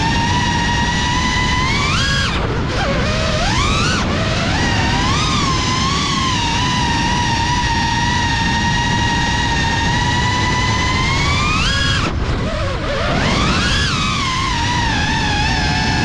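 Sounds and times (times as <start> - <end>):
drone motors whining: 0.0 - 16.0
prop wash rumble: 0.0 - 16.0.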